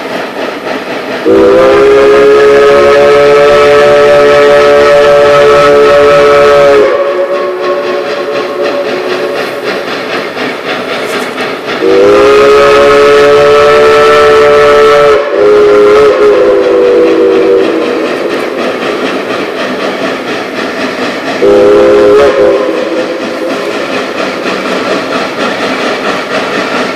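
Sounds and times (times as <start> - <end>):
locomotive steam exhaust and hiss: 0.0 - 26.9
steam whistle blasts: 1.2 - 9.6, 11.8 - 18.7, 21.3 - 24.0.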